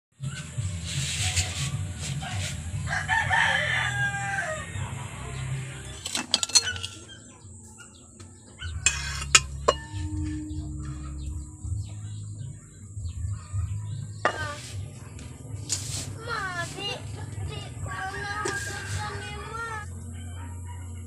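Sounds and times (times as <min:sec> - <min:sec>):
fork rattling on metal lid: 0:06.0 - 0:07.1, 0:08.8 - 0:10.0
steady low hum: 0:08.7 - 0:21.0
chicken drawn-out call: 0:17.9 - 0:19.8.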